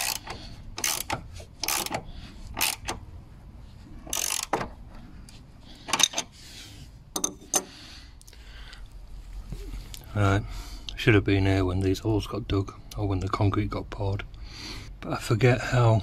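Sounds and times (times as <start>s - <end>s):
ratchet spanner clicking: 0.0s - 3.0s, 4.1s - 4.6s.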